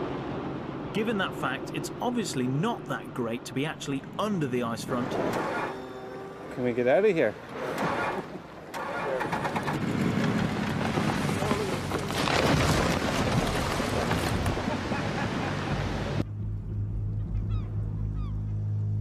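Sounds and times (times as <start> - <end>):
boat motor humming: 0.0 - 12.1
ice collapsing into sea: 10.0 - 15.0.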